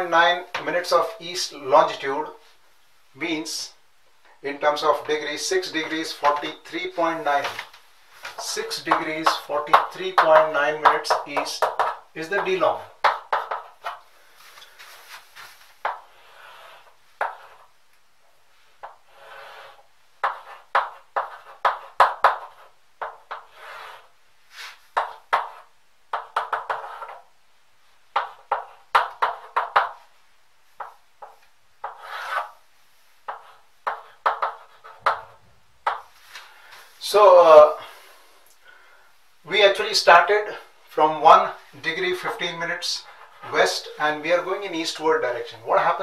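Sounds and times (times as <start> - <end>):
chalk scratching on blackboard: 15.8 - 17.7, 18.8 - 27.2, 30.8 - 32.6, 33.2 - 35.3.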